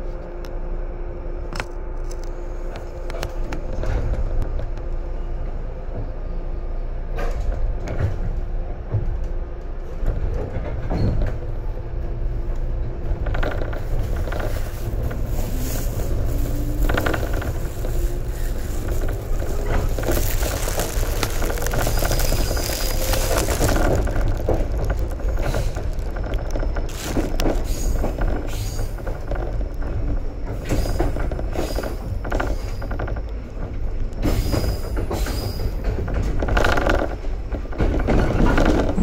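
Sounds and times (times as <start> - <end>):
train rumble: 0.0 - 39.0
wheels clacking over rail joints: 12.5 - 39.0.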